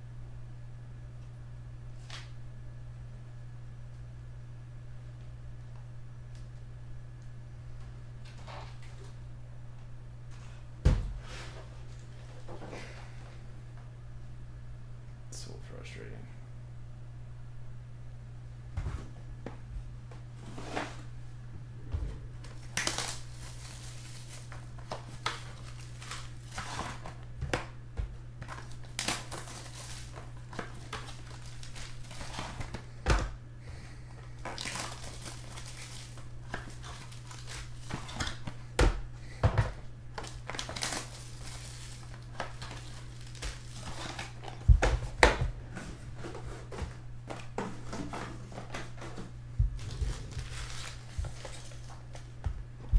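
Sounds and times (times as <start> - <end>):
steady low hum: 0.0 - 52.9
foil wrappers crinkling: 22.4 - 27.7, 28.4 - 33.0, 33.7 - 39.4, 40.1 - 45.3, 49.6 - 52.5.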